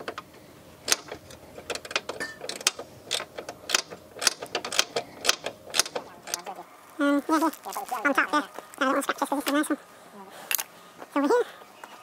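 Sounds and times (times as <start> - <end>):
hand ratchet clicking: 0.8 - 6.5.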